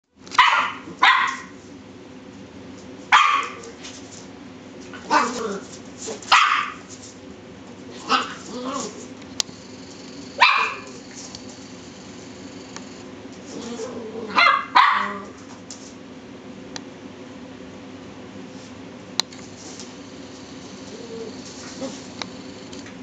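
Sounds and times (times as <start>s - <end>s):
puppy barking: 0.4s - 1.6s, 3.1s - 3.8s, 5.0s - 5.6s, 6.2s - 6.9s, 8.0s - 9.0s, 10.4s - 11.0s, 14.3s - 15.4s.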